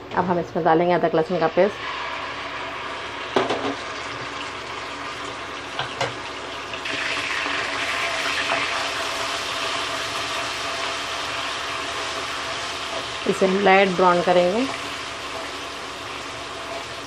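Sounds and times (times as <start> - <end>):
paste sizzling in oil: 1.6 - 17.0
spatula stirring: 11.9 - 17.0.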